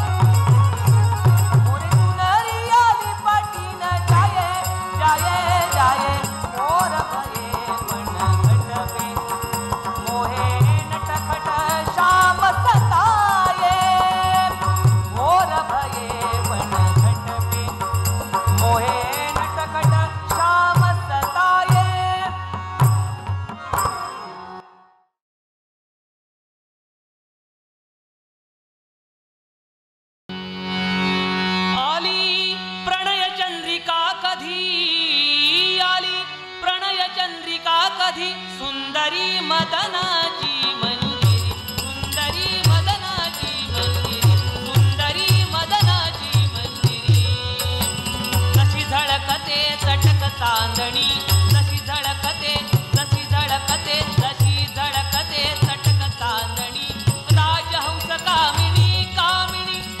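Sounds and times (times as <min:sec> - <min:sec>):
man singing folk song: 0:01.6 - 0:22.4, 0:31.9 - 1:00.0
hand cymbals jingling: 0:41.2 - 0:58.9.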